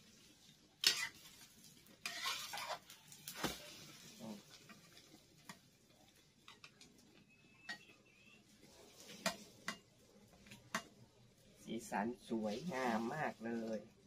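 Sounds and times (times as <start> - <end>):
metal utensil tapping frying pan: 7.6 - 8.0, 9.1 - 11.0.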